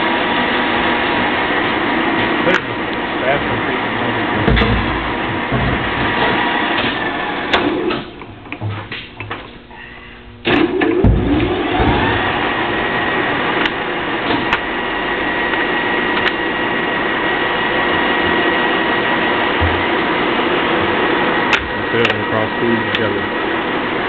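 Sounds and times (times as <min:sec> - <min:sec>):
lathe humming and whining: 0:00.0 - 0:24.0.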